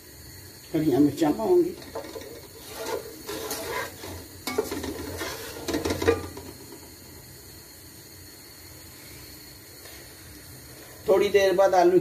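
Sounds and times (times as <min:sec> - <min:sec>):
spoon scraping metal pot: 0:02.0 - 0:06.3.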